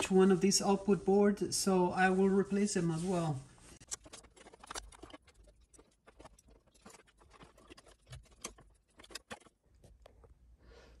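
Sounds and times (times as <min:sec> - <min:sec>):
small clicks and rustles of wires: 0:03.7 - 0:10.4.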